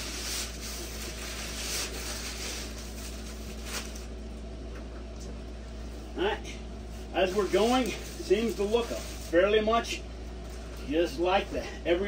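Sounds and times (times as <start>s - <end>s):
plastic bag rustling: 0.0s - 4.2s, 6.9s - 9.8s.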